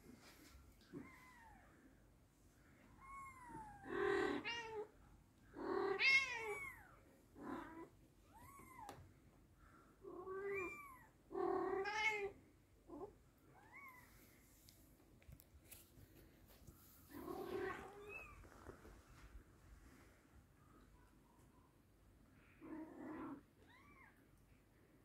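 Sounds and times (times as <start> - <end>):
cats meowing: 5.5 - 9.0, 17.1 - 18.6.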